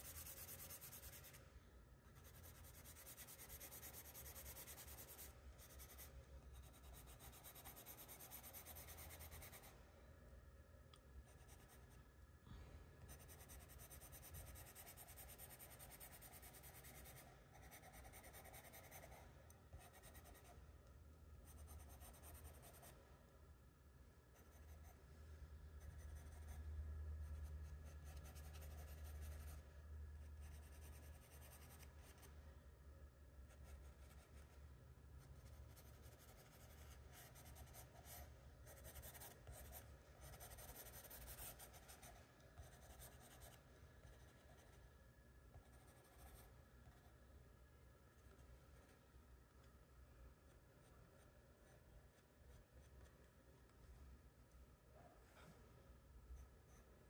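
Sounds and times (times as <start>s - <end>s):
pencil scratching on paper: 0.0s - 1.4s, 2.1s - 9.7s, 11.3s - 11.9s, 13.1s - 20.6s, 21.4s - 22.9s, 24.4s - 25.0s, 25.8s - 26.6s, 27.2s - 29.6s, 30.3s - 32.3s, 35.4s - 44.8s, 45.6s - 47.0s.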